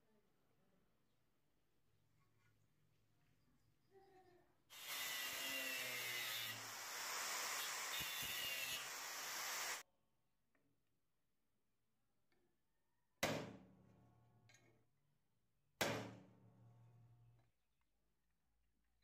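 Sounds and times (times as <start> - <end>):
angle grinder grinding metal: 4.7 - 9.8.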